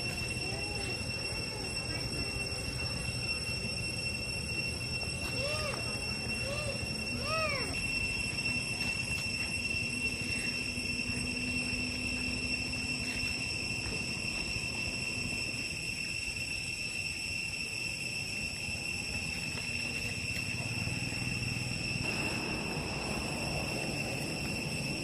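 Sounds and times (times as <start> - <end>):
insects droning: 0.0 - 25.0
low background rumble: 19.6 - 25.0.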